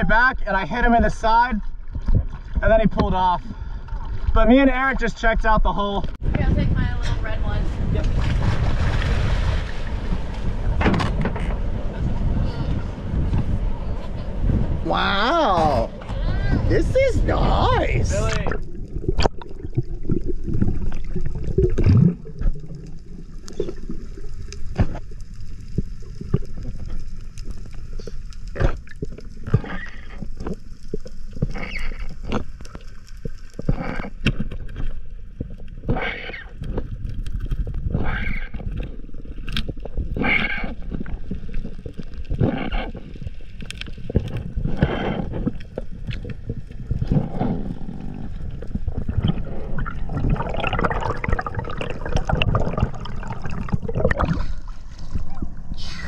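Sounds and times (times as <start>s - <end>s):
underwater rumble: 0.8s - 56.0s
bubbling bursts and clicks: 17.0s - 56.0s.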